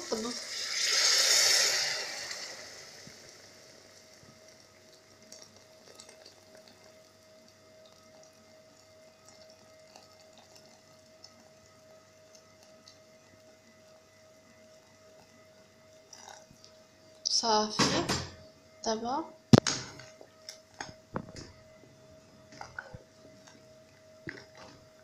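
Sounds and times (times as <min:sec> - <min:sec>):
water sizzling in hot pot: 0:00.0 - 0:18.1, 0:19.9 - 0:25.0
faint steady hum: 0:00.0 - 0:25.0
faint water trickle: 0:02.6 - 0:17.6.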